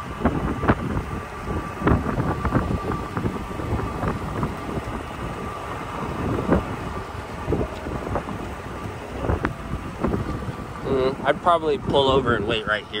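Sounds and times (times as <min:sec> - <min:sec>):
low vehicle rumble: 0:00.0 - 0:13.0
wind buffeting microphone: 0:00.0 - 0:13.0.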